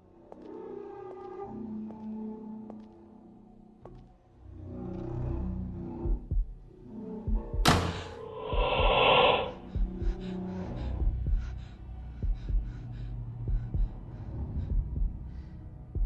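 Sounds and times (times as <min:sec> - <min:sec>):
heartbeat thuds: 0:06.0 - 0:06.7, 0:07.3 - 0:10.3, 0:11.0 - 0:16.0
dull hum: 0:07.8 - 0:16.0.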